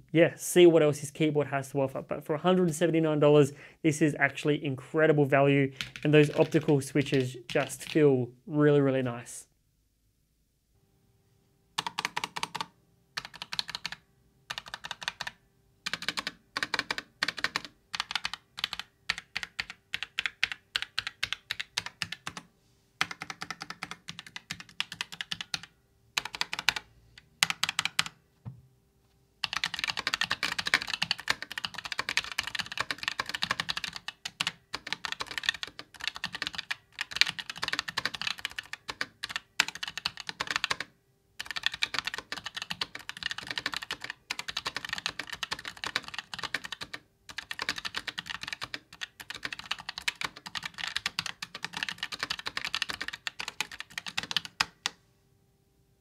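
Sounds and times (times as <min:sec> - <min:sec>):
fast typing on keyboard: 0:05.8 - 0:08.0, 0:11.8 - 0:28.2, 0:29.4 - 0:55.0.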